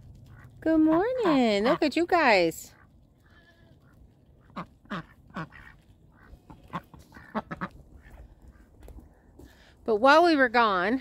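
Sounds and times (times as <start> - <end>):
ducks quacking softly: 0.3 - 8.8.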